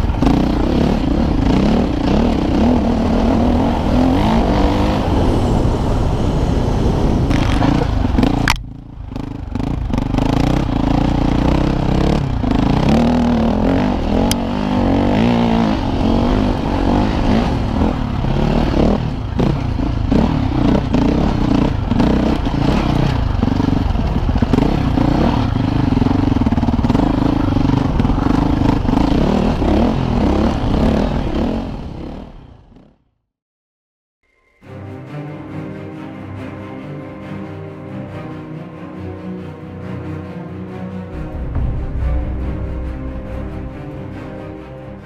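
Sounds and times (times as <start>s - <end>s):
motorcycle engine revving: 0.0s - 33.1s.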